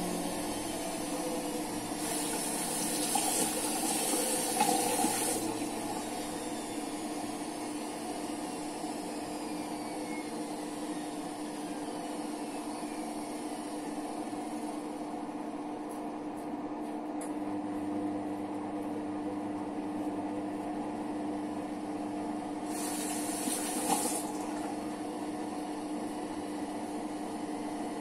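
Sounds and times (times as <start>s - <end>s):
water running: 0.1s - 6.2s, 22.7s - 24.7s.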